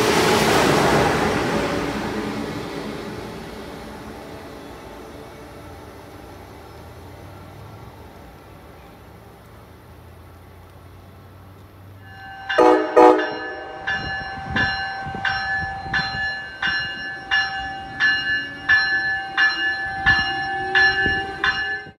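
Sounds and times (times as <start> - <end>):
locomotive bell ringing: 12.0 - 22.0
train horn blasts: 12.1 - 16.3.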